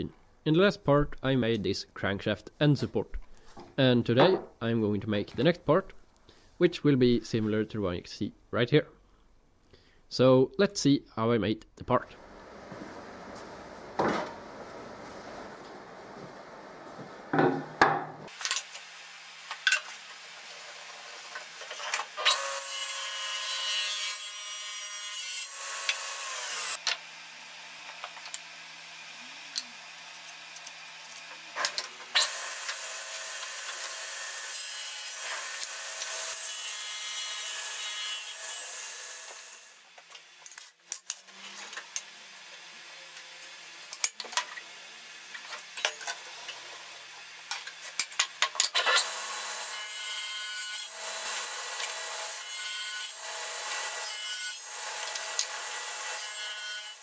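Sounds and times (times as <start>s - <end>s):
boards knocking: 17.3s - 18.3s
table saw cutting wood: 18.3s - 39.9s, 48.8s - 57.0s.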